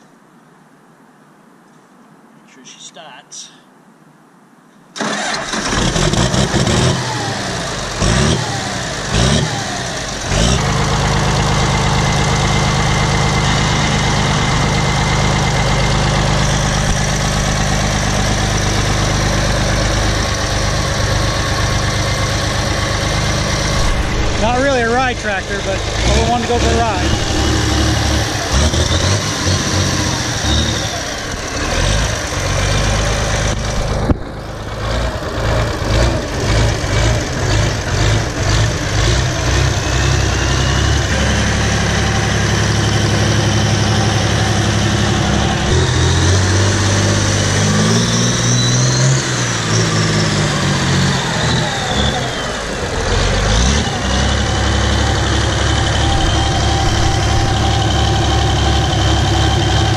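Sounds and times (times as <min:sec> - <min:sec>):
tractor diesel engine revving: 0:05.0 - 0:59.9.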